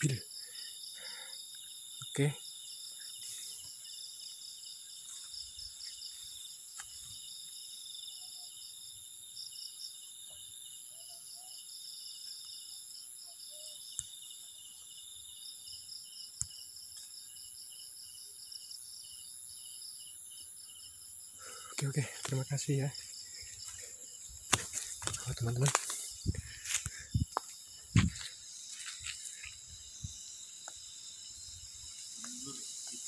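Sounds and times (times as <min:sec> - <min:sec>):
crickets and insects trilling: 0:00.0 - 0:33.0.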